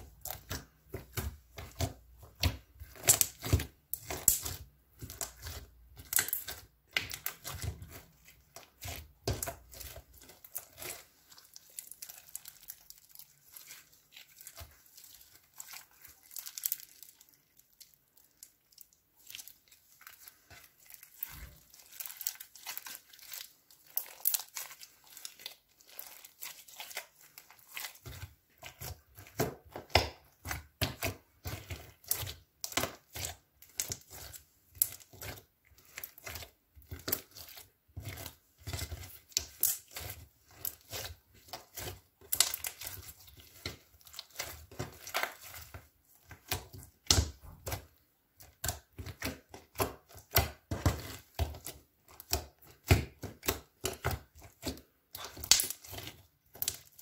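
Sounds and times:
sticky crackles and pops: 0:00.0 - 0:08.1, 0:48.5 - 0:57.0
slime squished by hand: 0:00.0 - 0:57.0.

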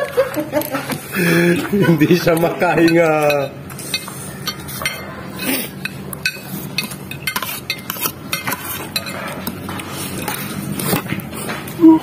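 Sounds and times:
fork scraping a plate: 0:02.2 - 0:11.6.

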